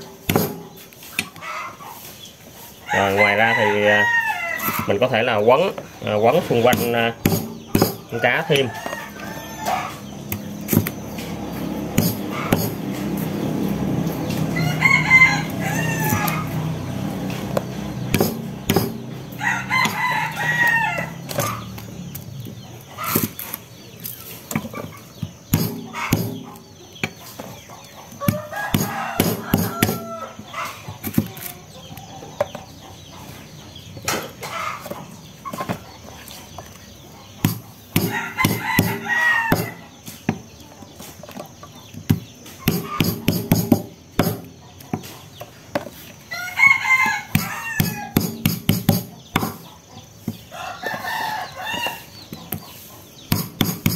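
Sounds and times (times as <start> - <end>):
hens clucking: 0.0 - 48.4
stalks being smashed: 0.2 - 1.4, 15.7 - 21.9, 42.1 - 44.5
rooster crowing: 2.8 - 5.3, 8.1 - 10.4, 13.4 - 21.7, 28.2 - 30.8, 38.0 - 39.9, 46.3 - 48.4, 50.5 - 52.2.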